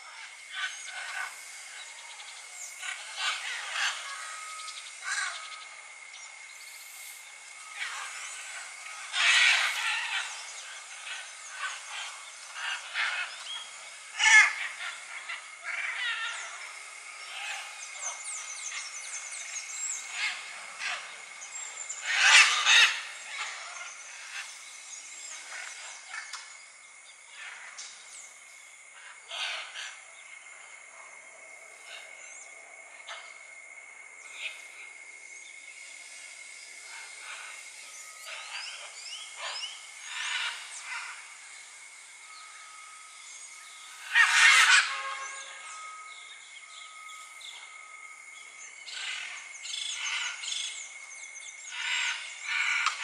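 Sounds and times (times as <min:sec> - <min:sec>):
macaws squawking: 0:43.9 - 0:45.1.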